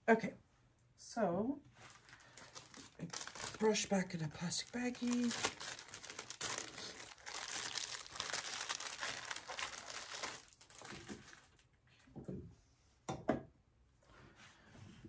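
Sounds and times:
plastic bag crinkling: 1.8s - 11.7s.

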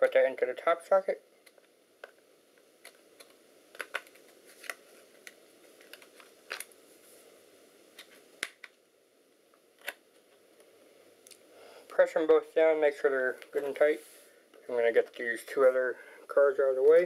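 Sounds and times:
low hiss: 0.0s - 17.0s.

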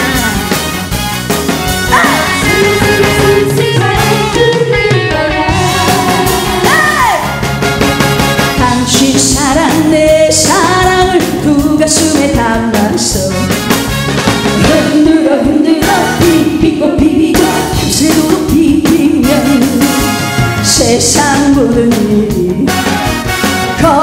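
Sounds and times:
band with drums and keyboards: 0.0s - 24.0s
woman singing into a microphone: 1.9s - 7.3s, 8.6s - 13.4s, 14.6s - 20.0s, 20.6s - 22.8s, 23.8s - 24.0s.

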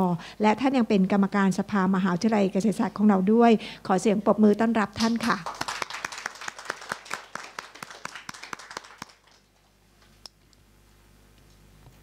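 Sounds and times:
audience applauding: 5.3s - 9.8s.

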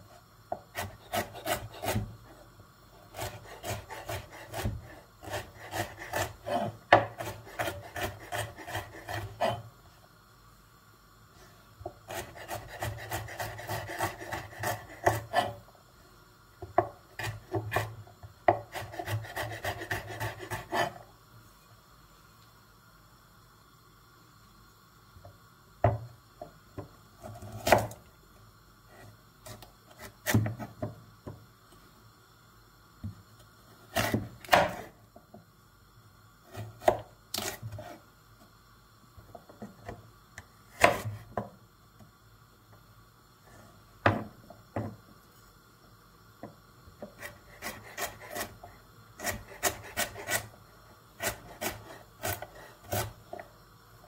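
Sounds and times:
knife chopping carrot on board: 12.1s - 15.6s, 34.0s - 34.8s, 40.8s - 41.2s.

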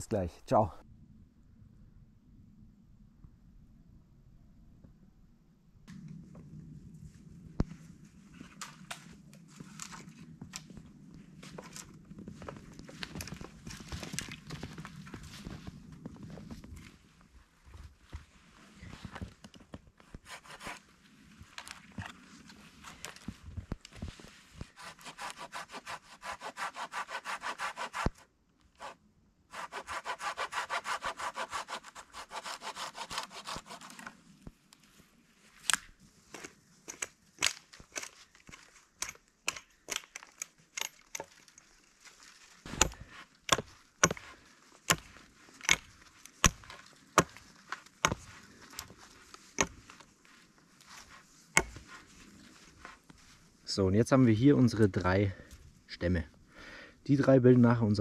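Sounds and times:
hand saw cutting wood: 20.2s - 20.8s, 24.8s - 28.2s, 28.8s - 34.1s, 42.7s - 45.1s.

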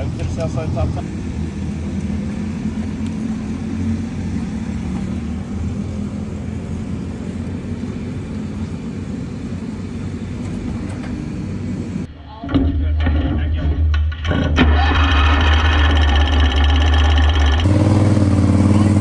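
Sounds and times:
race car engines idling: 0.0s - 12.1s.

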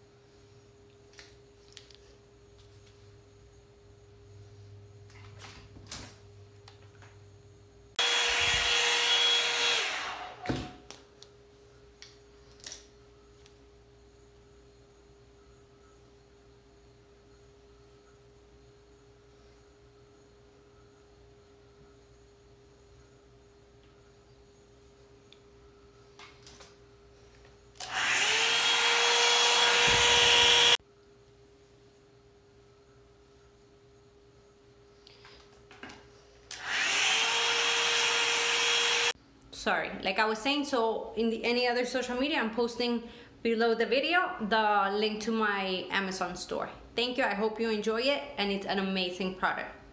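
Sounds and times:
hot-air brush dryer whining: 8.0s - 10.8s, 27.8s - 30.8s, 36.5s - 39.2s.

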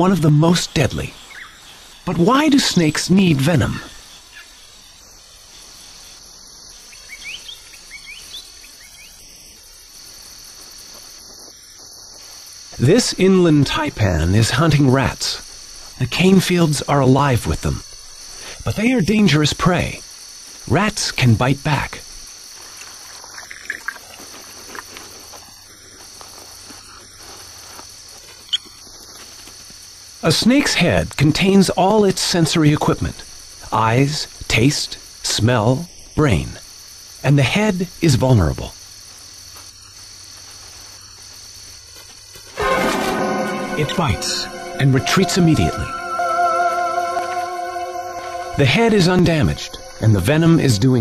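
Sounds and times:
crickets chirping: 0.0s - 51.0s
insect chorus trilling: 0.0s - 51.0s
rustles in dry leaves: 22.3s - 29.8s, 38.8s - 42.6s
brief sharp sound: 42.6s - 50.3s
short rising chirps: 42.6s - 50.6s.

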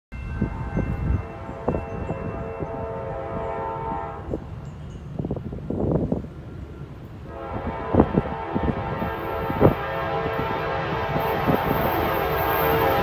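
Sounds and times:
locomotive air horn: 0.4s - 4.5s, 7.3s - 13.0s.

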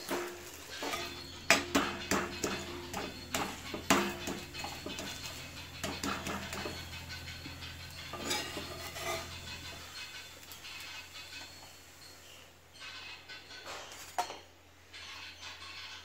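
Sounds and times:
steel spatula scraping griddle: 0.0s - 12.1s.

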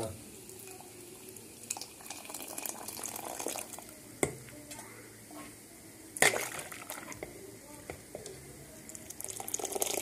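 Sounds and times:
water pouring and splashing: 6.2s - 7.2s.

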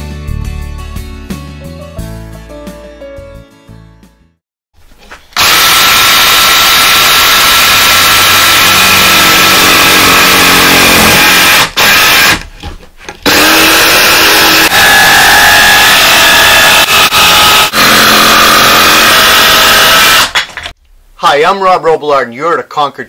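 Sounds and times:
jigsaw cutting plywood: 5.4s - 12.4s, 13.2s - 20.7s.

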